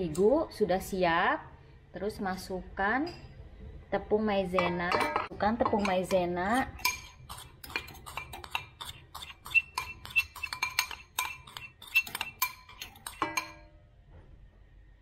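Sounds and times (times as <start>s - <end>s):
metal spoon clinking on bowl: 4.6s - 13.8s.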